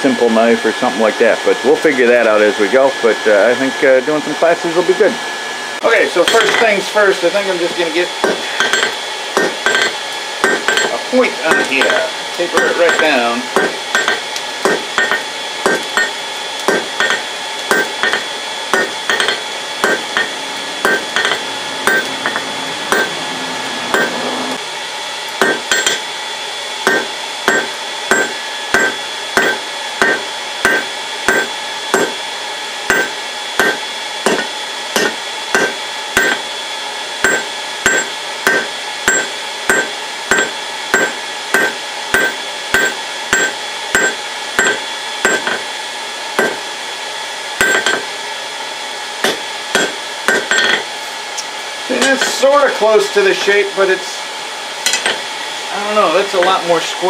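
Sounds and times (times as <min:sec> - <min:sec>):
hammer striking steel on anvil: 0:06.2 - 0:06.8, 0:08.2 - 0:23.2, 0:23.9 - 0:24.2, 0:25.4 - 0:26.1, 0:26.8 - 0:32.2, 0:32.9 - 0:36.5, 0:37.2 - 0:45.7, 0:46.4 - 0:46.7, 0:47.6 - 0:48.1, 0:49.2 - 0:50.9, 0:52.0 - 0:52.5, 0:54.8 - 0:55.2.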